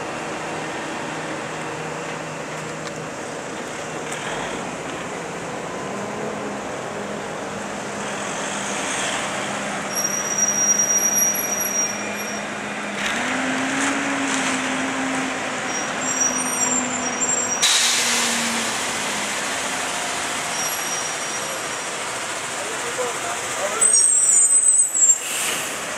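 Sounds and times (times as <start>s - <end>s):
truck diesel engine running: 0.0s - 24.3s
air brakes hissing: 15.8s - 19.2s, 23.7s - 25.9s.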